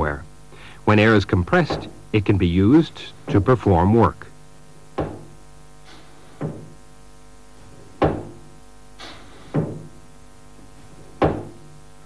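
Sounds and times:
steady hum: 0:00.0 - 0:12.0
pneumatic cylinder knocking: 0:01.4 - 0:02.1, 0:04.9 - 0:06.8, 0:07.8 - 0:10.0, 0:11.1 - 0:11.8.

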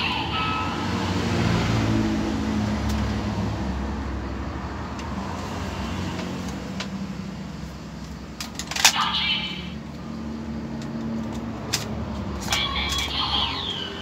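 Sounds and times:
electronic engine-like rumble from toy: 0:12.4 - 0:14.0.

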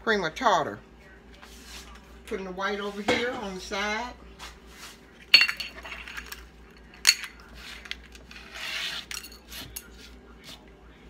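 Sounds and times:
bowls and utensils clinking: 0:05.3 - 0:07.4.

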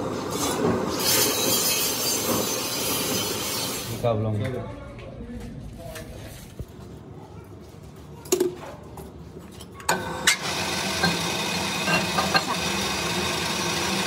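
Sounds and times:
metal lathe humming: 0:09.9 - 0:14.0.

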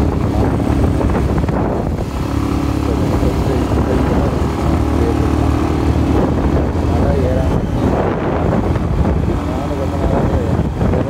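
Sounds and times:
motorcycle engine cruising: 0:00.0 - 0:11.0
wind and road noise: 0:00.0 - 0:11.0.

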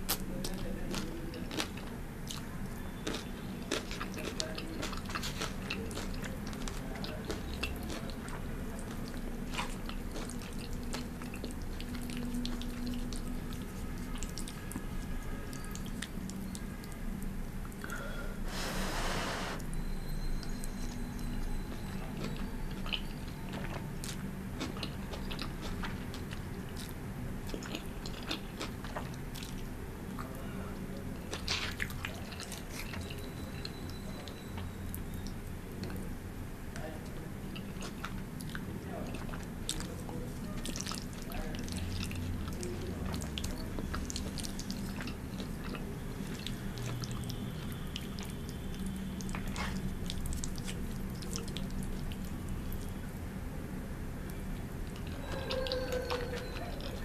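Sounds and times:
chewing noodles: 0:00.0 - 0:17.0, 0:20.4 - 0:36.1, 0:37.1 - 0:53.2, 0:54.3 - 0:57.0
slurping noodles: 0:18.5 - 0:19.6.

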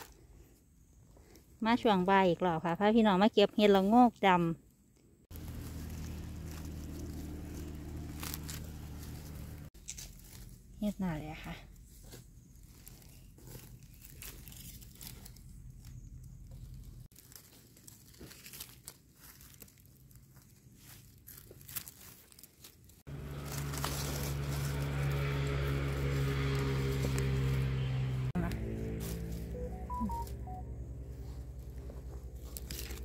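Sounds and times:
dry leaves crackling: 0:05.3 - 0:33.0
electronic tone: 0:29.4 - 0:30.9.

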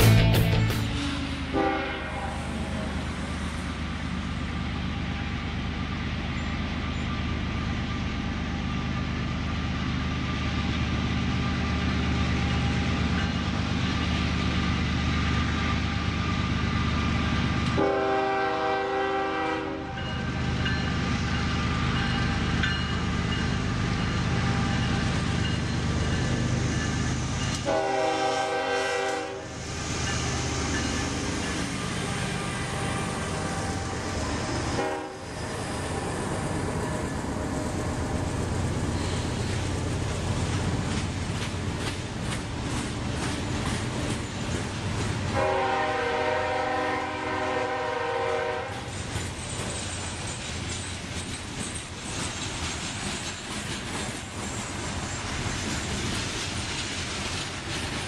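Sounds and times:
diesel locomotive engine rumble: 0:00.0 - 0:58.0
locomotive horn blasts: 0:01.5 - 0:03.0, 0:17.8 - 0:20.0, 0:27.6 - 0:29.5, 0:34.8 - 0:35.3, 0:45.3 - 0:48.8.

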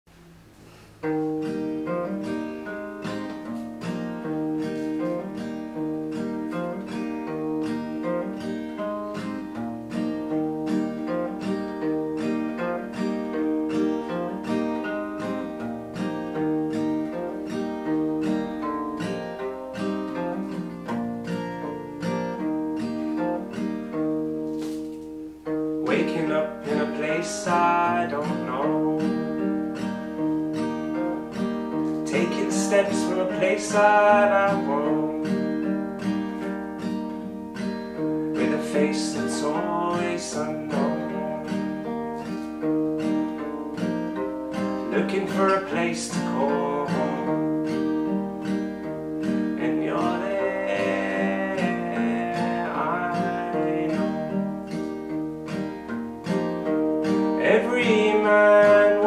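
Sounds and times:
acoustic guitar: 0:00.0 - 0:59.0
man singing: 0:25.8 - 0:29.6, 0:32.0 - 0:35.6, 0:38.3 - 0:41.9, 0:44.8 - 0:47.9, 0:49.5 - 0:54.5, 0:57.4 - 0:59.0.

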